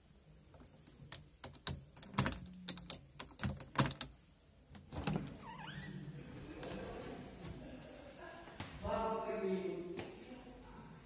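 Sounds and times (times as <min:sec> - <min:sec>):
sharp knocks and clicks: 0:00.6 - 0:04.1.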